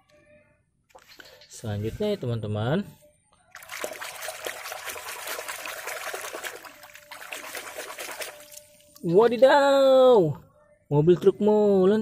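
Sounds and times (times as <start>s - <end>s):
water splashing and sloshing: 3.5s - 9.5s.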